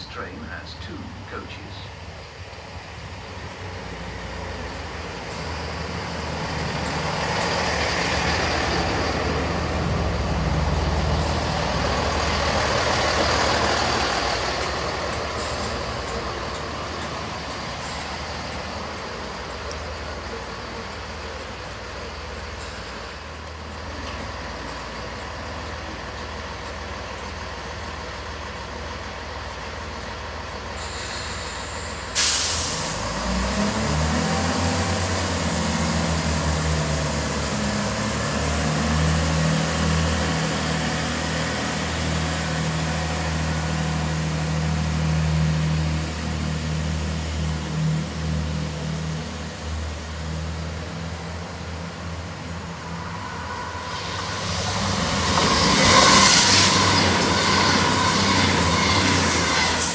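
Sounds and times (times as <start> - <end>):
diesel engines revving: 0.0 - 59.9
diesel train idling: 0.0 - 59.9
air hiss: 30.8 - 33.0.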